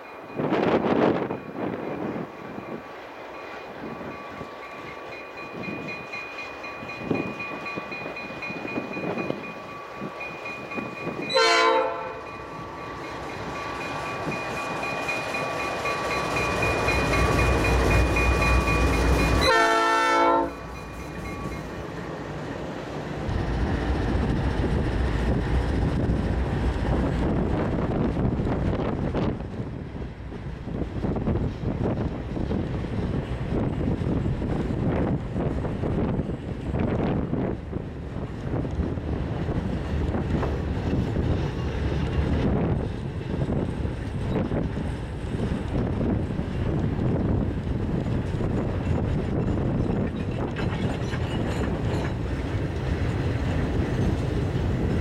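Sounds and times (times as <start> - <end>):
diesel locomotive rumbling past: 0.0 - 55.0
train air horn blasts: 11.3 - 12.3, 19.4 - 20.6.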